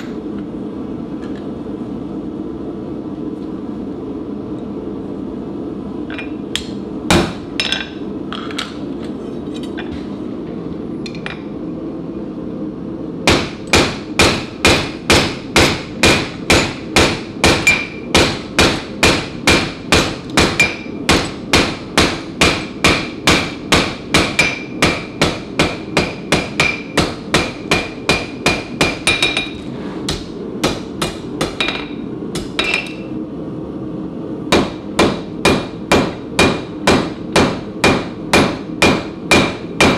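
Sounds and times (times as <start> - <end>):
hammer striking metal on anvil: 13.3 - 33.1, 34.5 - 39.9.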